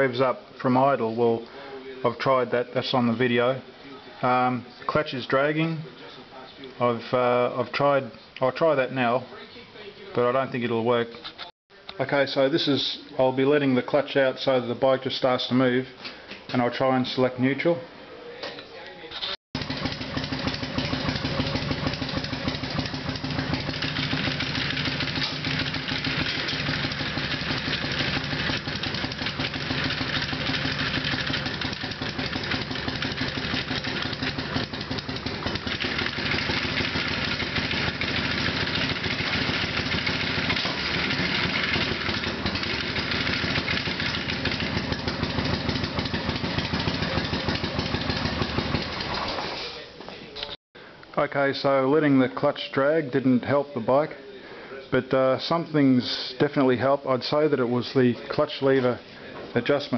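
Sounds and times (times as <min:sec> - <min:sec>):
motorcycle engine idling: 0:19.6 - 0:49.4.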